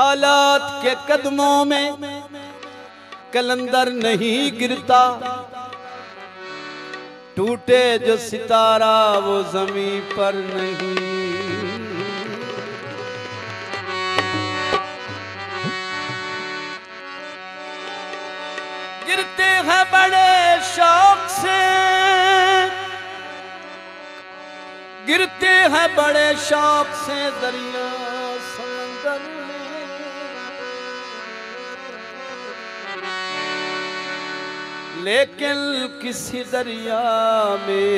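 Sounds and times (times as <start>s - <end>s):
harmonium chords: 0.0s - 37.9s
person singing: 7.4s - 13.2s, 19.0s - 23.8s.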